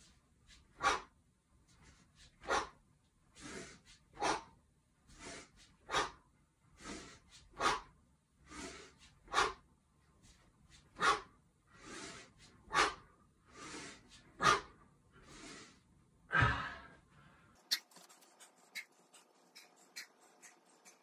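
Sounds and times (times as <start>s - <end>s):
man exhaling forcefully: 16.3s - 17.0s.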